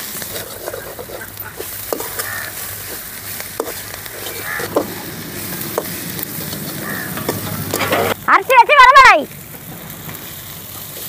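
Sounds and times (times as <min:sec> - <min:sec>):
soft sizzle: 0:00.0 - 0:11.0
metal spoon scraping pot: 0:00.2 - 0:08.2
stone roller grinding on slab: 0:00.2 - 0:08.2.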